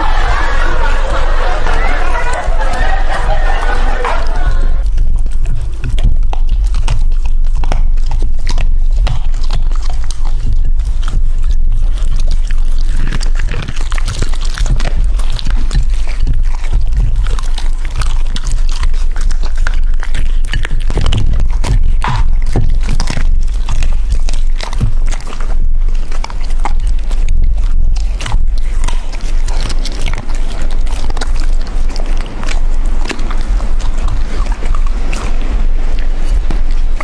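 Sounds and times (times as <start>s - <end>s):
dogs crunching bones: 0.0s - 37.0s.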